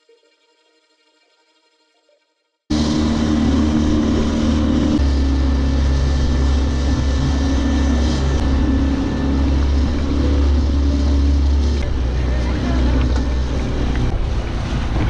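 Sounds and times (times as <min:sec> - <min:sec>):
outboard motor humming: 0:02.7 - 0:15.0
wake water rushing: 0:02.7 - 0:15.0
wind: 0:02.7 - 0:15.0.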